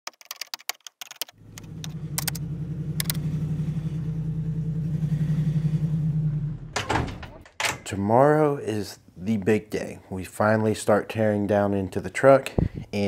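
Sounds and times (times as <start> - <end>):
truck engine running: 1.4 - 7.4.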